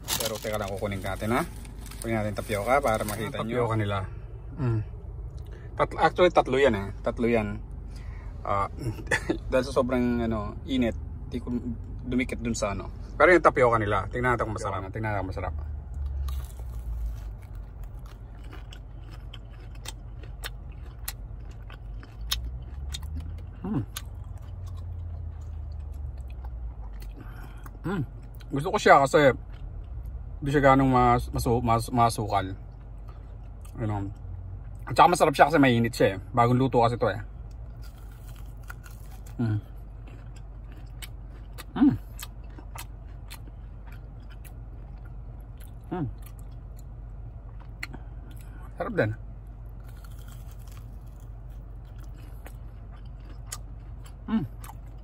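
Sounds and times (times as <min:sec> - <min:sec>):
low car interior rumble: 0:00.0 - 0:55.0
man chewing crunchy food: 0:14.6 - 0:28.6, 0:29.3 - 0:30.4, 0:32.2 - 0:35.0, 0:37.2 - 0:48.8, 0:49.5 - 0:55.0.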